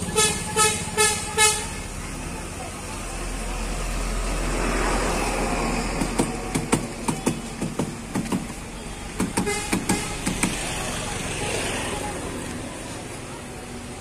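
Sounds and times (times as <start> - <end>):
vehicle passing: 0.0 - 7.1
street traffic: 0.0 - 14.0.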